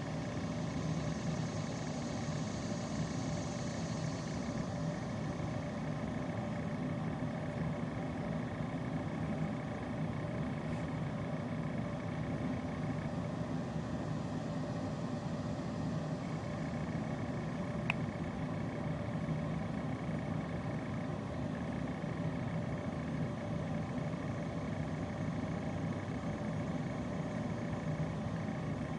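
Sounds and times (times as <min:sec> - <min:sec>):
low rumble and hum: 0:00.0 - 0:28.9
faint click: 0:17.8 - 0:18.0.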